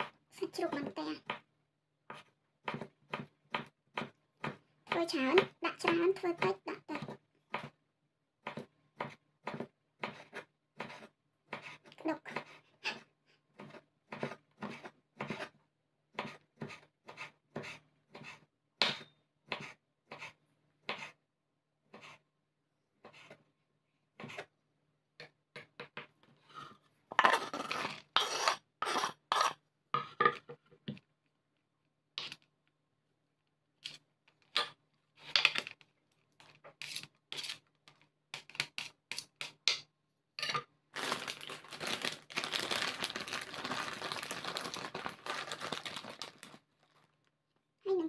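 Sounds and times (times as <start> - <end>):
plastic bag rustling: 40.9 - 47.2.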